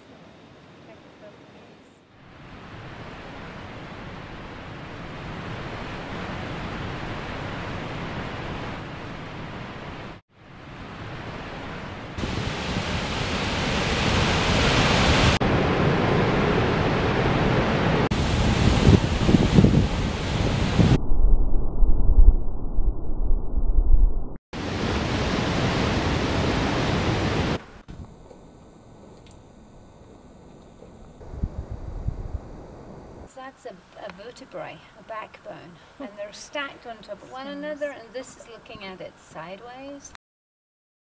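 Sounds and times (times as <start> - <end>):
rushing water of waterfall: 11.0 - 20.7, 24.6 - 27.6.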